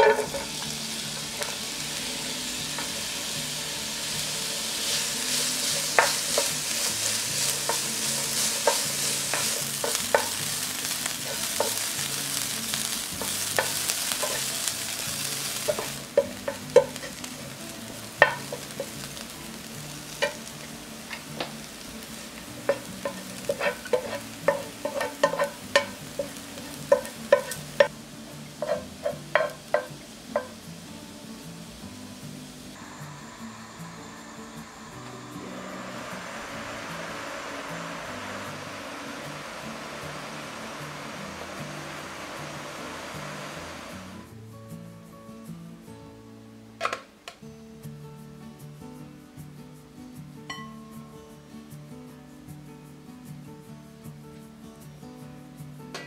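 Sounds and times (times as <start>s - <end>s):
onion sizzling in frying pan: 0.0s - 44.9s
spatula tapping and scraping pan: 4.8s - 12.1s, 12.8s - 17.2s, 18.2s - 19.1s, 22.6s - 27.9s, 28.6s - 30.6s.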